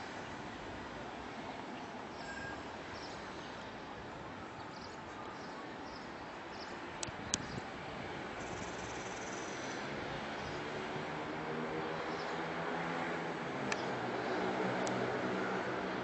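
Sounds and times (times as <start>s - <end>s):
outdoor background noise: 0.0s - 16.0s
faint high chirps: 2.1s - 3.1s.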